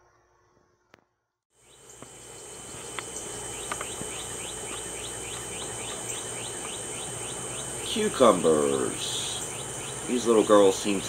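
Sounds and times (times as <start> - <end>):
high-pitched insect drone: 1.6 - 11.0.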